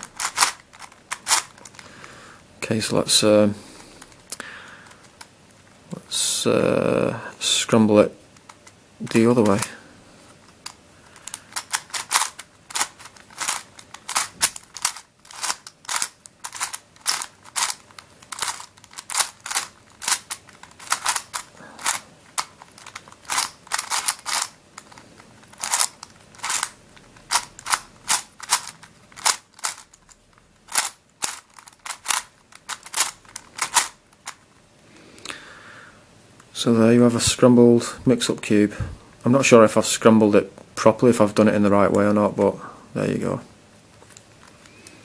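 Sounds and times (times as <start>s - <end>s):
puzzle cube layers clicking: 0.0s - 1.8s, 10.5s - 34.4s.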